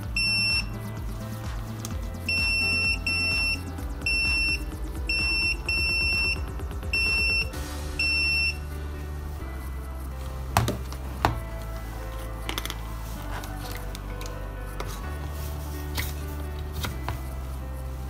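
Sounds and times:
background music: 0.0 - 18.0
multimeter short high beeps: 2.3 - 8.6.

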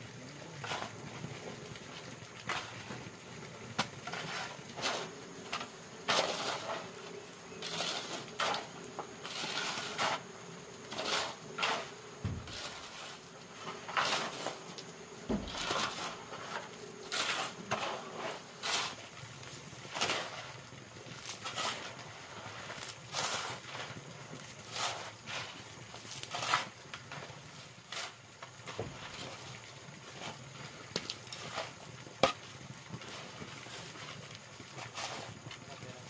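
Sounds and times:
short scraping strokes: 4.1 - 10.2, 10.8 - 14.6
dull thumps: 12.2 - 12.8, 15.2 - 16.0.

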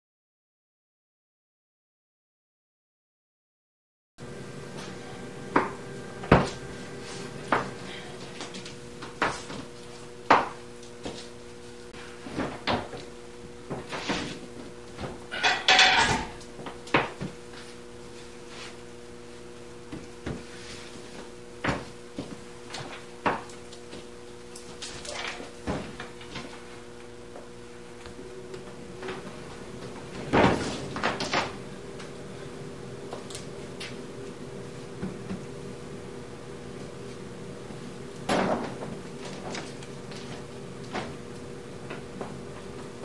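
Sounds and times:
steady hum: 4.2 - 43.0
knocks and clunks of heavy object: 38.3 - 39.6.

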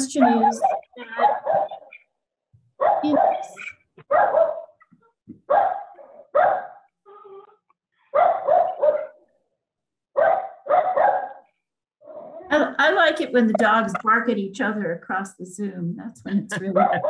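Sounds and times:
dogs barking: 0.2 - 2.0, 2.7 - 6.9, 8.0 - 9.4, 10.1 - 12.3, 16.7 - 17.0.

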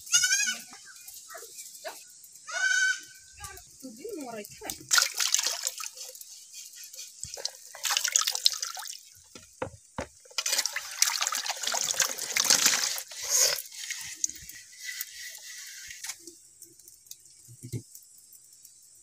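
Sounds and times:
water running off plate: 3.0 - 18.0
water splashing in a tub: 4.4 - 6.3, 7.0 - 16.4.

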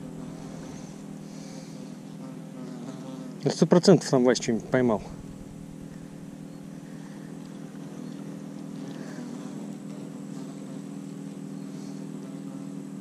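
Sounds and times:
engine running steadily: 0.0 - 2.3, 4.1 - 13.0.

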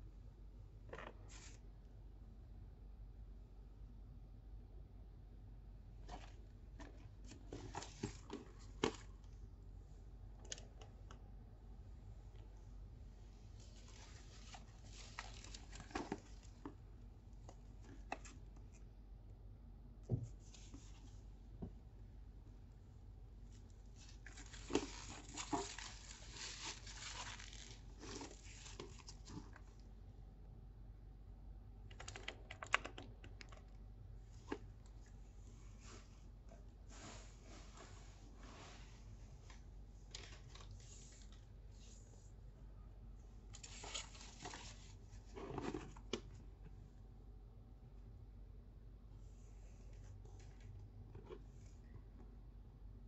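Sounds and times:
plastic wrapping rustling: 13.6 - 16.7, 24.0 - 29.6.

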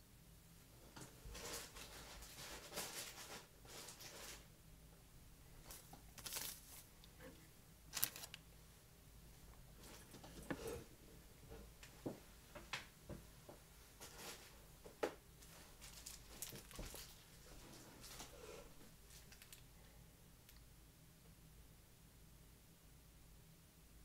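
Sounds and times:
light rustles of materials: 0.8 - 4.5, 5.6 - 8.4, 9.4 - 10.9, 11.5 - 19.8.

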